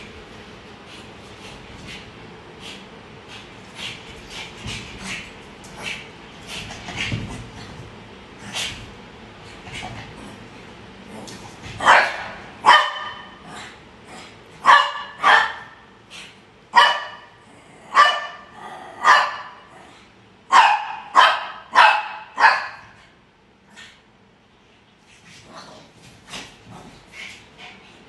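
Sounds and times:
dog barking: 0:11.8 - 0:13.4, 0:14.6 - 0:15.8, 0:16.7 - 0:19.6, 0:20.5 - 0:22.9.

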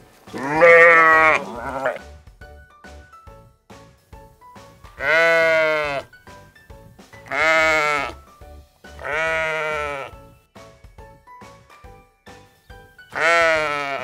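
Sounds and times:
quiet background music: 0:00.0 - 0:14.0
sheep bleating: 0:00.3 - 0:02.0, 0:05.0 - 0:06.1, 0:07.3 - 0:08.2, 0:09.0 - 0:10.2, 0:13.1 - 0:14.0.

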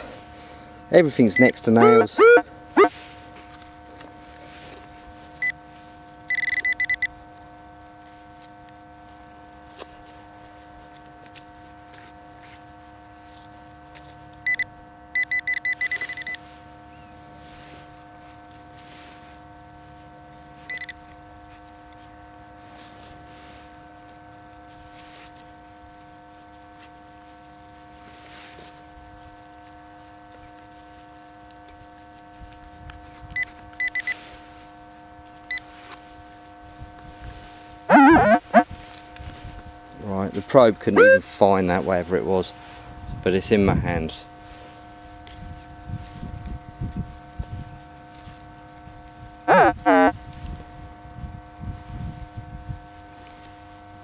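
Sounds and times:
faint electronic hum: 0:00.0 - 0:54.0
metal detector probe beeping: 0:01.2 - 0:02.9, 0:06.3 - 0:07.2, 0:14.4 - 0:16.4, 0:20.7 - 0:21.0, 0:33.4 - 0:34.2, 0:37.9 - 0:38.6, 0:41.0 - 0:41.3, 0:49.5 - 0:50.1.

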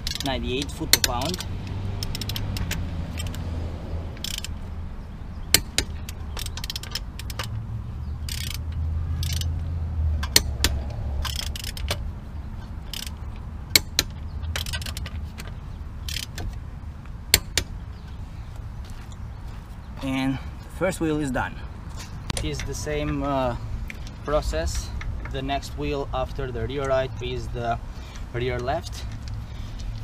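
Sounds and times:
torque wrench clicking: 0:00.0 - 0:03.4, 0:04.2 - 0:04.6, 0:05.5 - 0:07.6, 0:08.2 - 0:09.5, 0:10.2 - 0:12.0, 0:12.9 - 0:15.1, 0:16.0 - 0:16.6.

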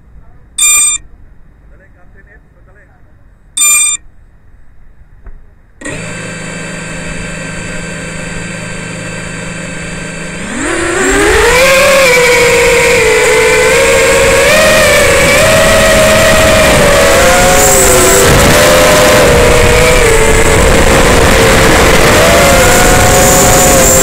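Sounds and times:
drone motors whining: 0:00.6 - 0:01.0, 0:05.8 - 0:24.0
short beep: 0:00.6 - 0:01.1, 0:03.6 - 0:04.1.

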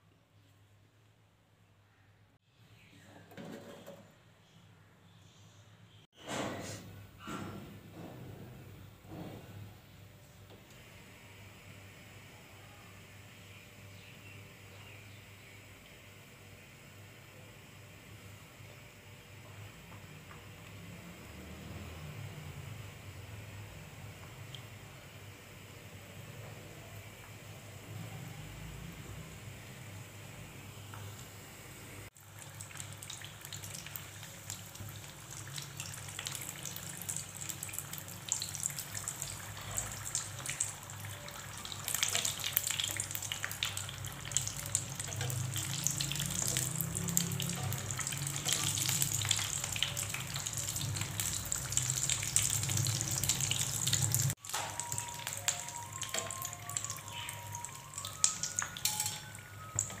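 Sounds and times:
food deep-frying in oil: 0:32.1 - 1:00.0
simple background melody: 0:54.4 - 1:00.0.

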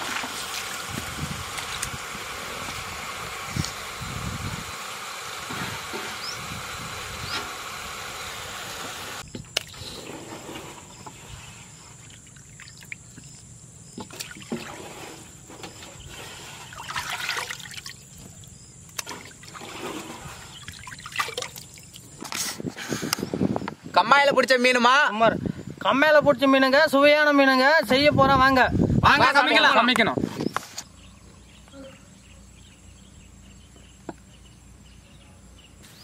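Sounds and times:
water trickling and dripping: 0:12.0 - 0:13.4.

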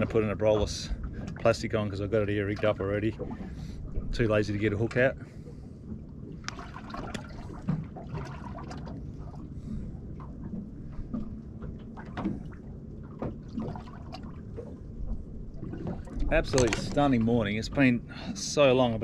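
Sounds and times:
water lapping against boat hull: 0:00.0 - 0:19.0
light clicks and knocks: 0:15.8 - 0:17.9.

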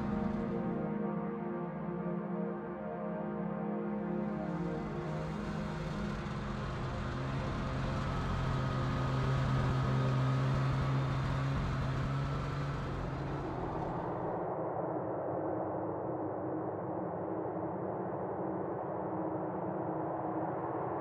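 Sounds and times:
road noise: 0:00.0 - 0:00.8, 0:04.3 - 0:14.3
vehicle engine hum: 0:00.0 - 0:00.8, 0:04.2 - 0:14.3.

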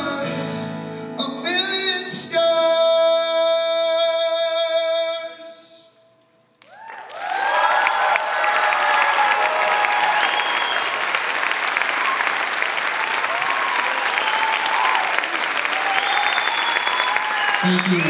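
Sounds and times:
audience clapping: 0:06.6 - 0:18.0
audience cheering and shouting: 0:06.7 - 0:18.0.

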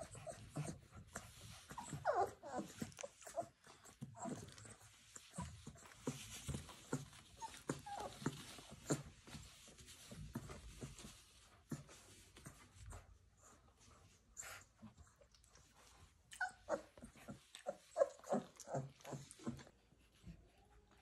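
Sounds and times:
puppy whines: 0:00.0 - 0:09.7, 0:14.4 - 0:21.0
puppies scuffling: 0:00.0 - 0:20.9.

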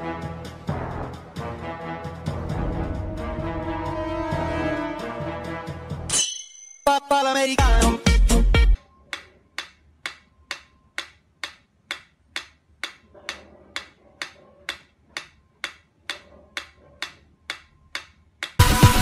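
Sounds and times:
loud music: 0:00.0 - 0:06.1, 0:06.9 - 0:08.8, 0:18.6 - 0:19.0
mechanical metronome ticking: 0:09.1 - 0:13.1, 0:13.8 - 0:18.6.

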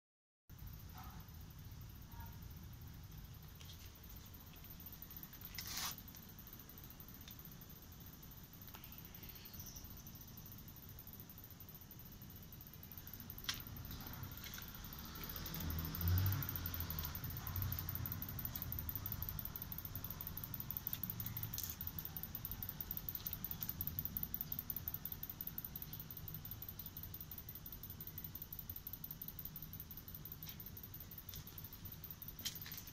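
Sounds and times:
background hum: 0:00.5 - 0:32.9
rustling scrape of camera handling: 0:05.4 - 0:06.0.

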